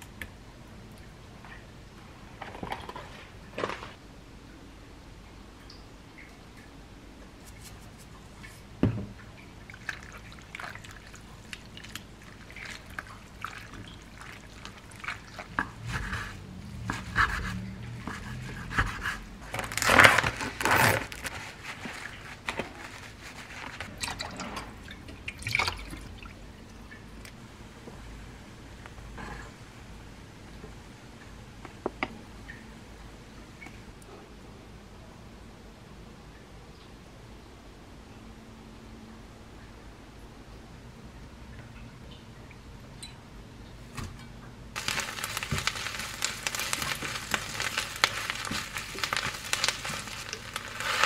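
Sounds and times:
water dripping: 0:05.2 - 0:06.8, 0:07.5 - 0:18.2, 0:23.6 - 0:27.4
water squeezed from seaweed: 0:09.7 - 0:24.6, 0:44.8 - 0:51.0.

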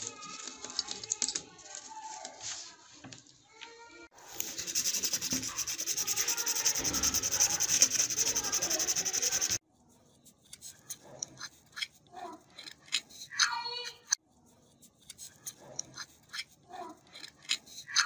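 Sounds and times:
faint light scratches: 0:04.3 - 0:13.3
hand file rasping on metal: 0:04.3 - 0:13.4.

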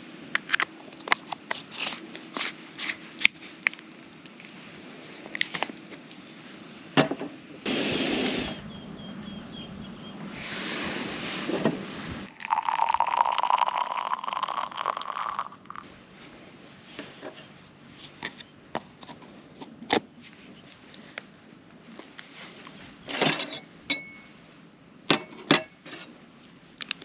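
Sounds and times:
loud hiss: 0:06.0 - 0:09.2, 0:10.2 - 0:15.6
water pouring into tank: 0:12.2 - 0:15.8.

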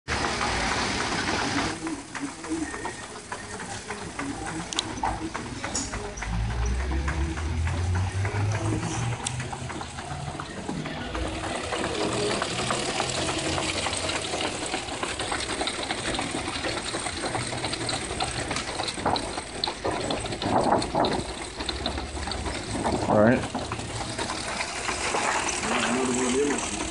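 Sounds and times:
machine whirring and clicking: 0:00.1 - 0:26.9.

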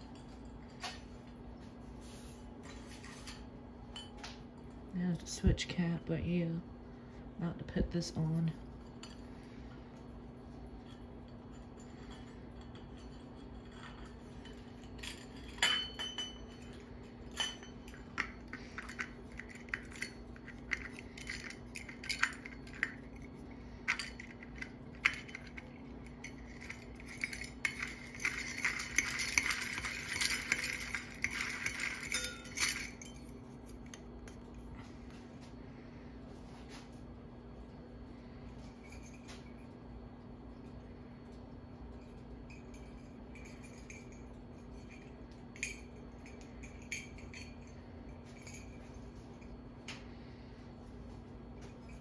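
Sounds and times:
metal clinking and rattling: 0:10.7 - 0:34.5, 0:42.0 - 0:49.6
metal jangling: 0:10.9 - 0:34.0.

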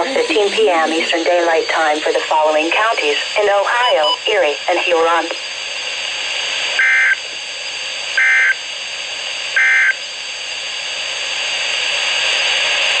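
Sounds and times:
steady radio hiss: 0:00.0 - 0:13.0
short data bursts from radio: 0:02.8 - 0:05.5, 0:06.7 - 0:07.3, 0:08.2 - 0:08.6, 0:09.6 - 0:10.0.

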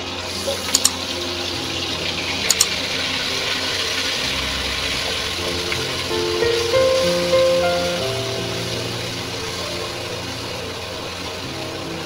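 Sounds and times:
meat sizzling in hot oil: 0:00.1 - 0:12.0
sharp clicks: 0:00.7 - 0:01.0, 0:02.5 - 0:02.8.

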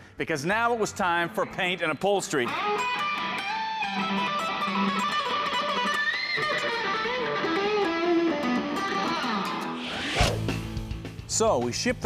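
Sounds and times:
electric guitar bending notes: 0:00.7 - 0:11.0.

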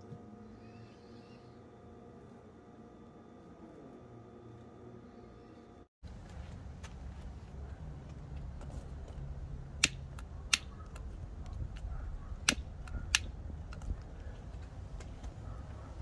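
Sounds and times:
low steady rumble: 0:05.7 - 0:16.0.

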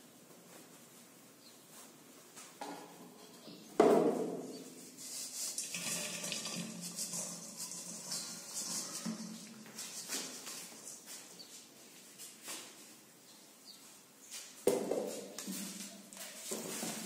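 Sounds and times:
dough pouring into steel bowl: 0:05.1 - 0:10.8.

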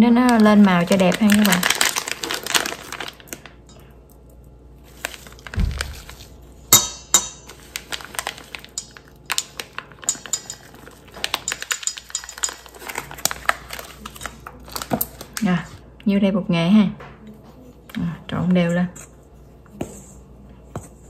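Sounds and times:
metal spoon clinking on bowl: 0:08.7 - 0:12.7.

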